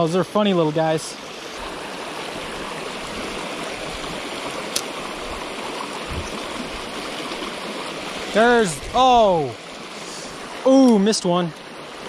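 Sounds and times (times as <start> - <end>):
creek rushing over rocks: 0.0 - 12.0.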